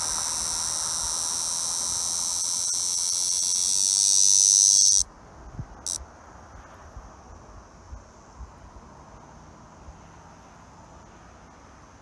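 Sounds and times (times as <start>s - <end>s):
cicada buzzing: 0.0s - 5.1s, 5.8s - 6.0s.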